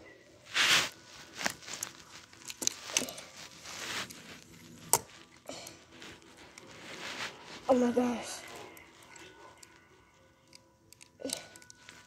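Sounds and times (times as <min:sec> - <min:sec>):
plastic clicks and scrapes: 0:01.3 - 0:07.2, 0:10.4 - 0:12.0.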